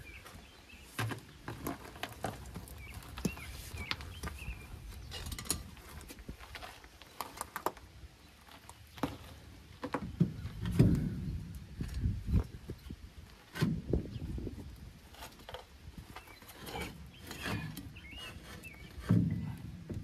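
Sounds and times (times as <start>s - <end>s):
wheel rolling over gravel: 0.0s - 12.6s.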